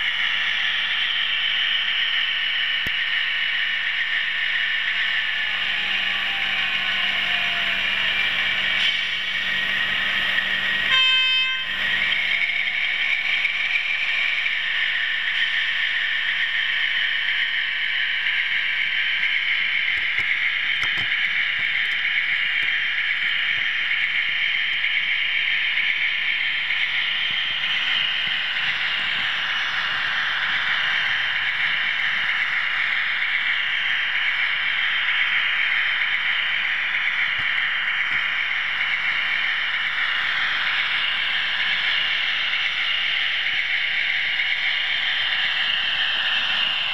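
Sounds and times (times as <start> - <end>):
model train rolling: 0.0 - 46.9
model train horn toot: 10.7 - 12.2.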